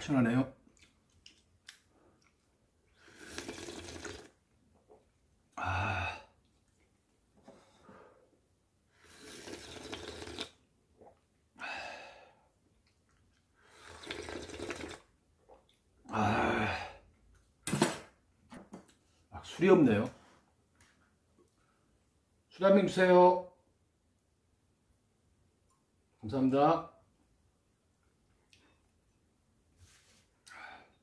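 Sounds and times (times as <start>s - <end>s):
person slurping broth: 2.9s - 4.4s, 9.0s - 11.2s, 13.6s - 15.1s
satisfied ahh breath: 30.4s - 31.0s.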